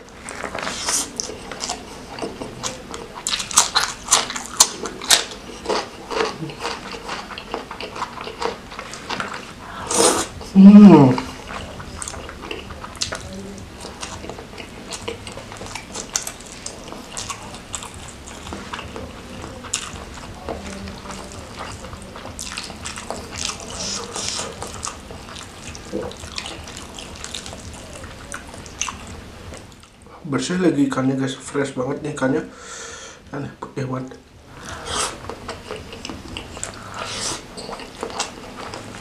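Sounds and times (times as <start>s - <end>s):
fried fish skin crackling and squelching: 0.0s - 9.6s, 11.2s - 30.0s.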